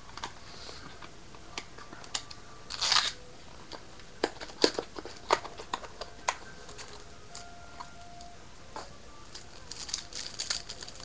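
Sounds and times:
wrapper crinkling and clicking: 2.0s - 7.5s, 9.3s - 11.0s
wrapper ripping: 2.7s - 3.2s, 9.5s - 11.0s.

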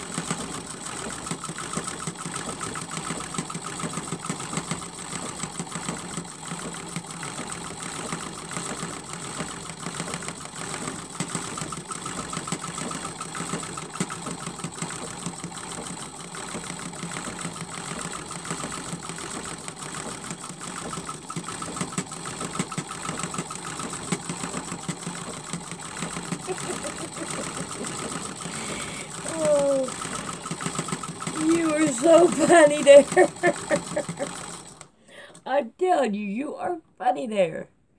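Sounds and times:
sewing machine stitching: 0.0s - 35.4s.

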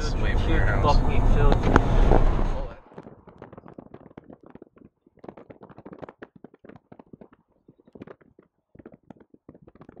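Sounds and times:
faint clicks and taps: 2.8s - 10.0s.

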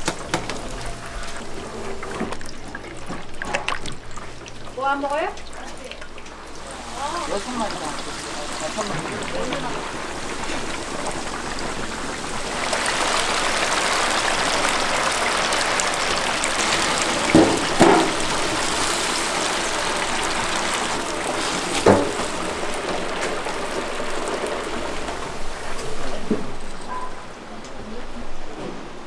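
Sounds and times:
food sizzling in hot oil: 4.2s - 26.9s.

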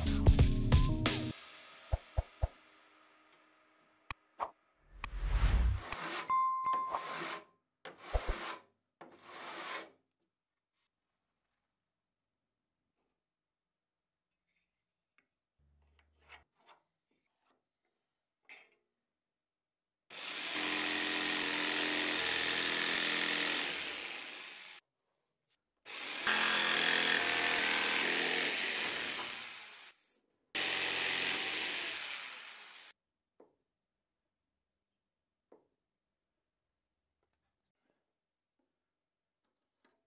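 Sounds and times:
electric saw cutting wood: 20.1s - 24.8s, 25.9s - 30.0s, 30.6s - 32.9s.

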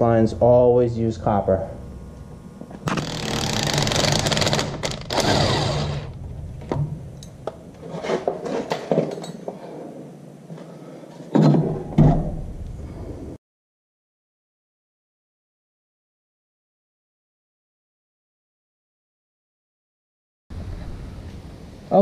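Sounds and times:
impact wrench running: 1.9s - 6.2s.

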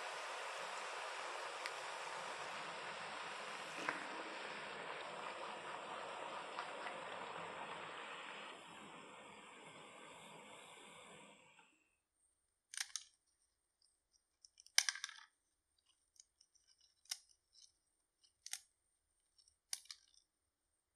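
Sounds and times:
hot oil sizzling: 0.0s - 11.5s.

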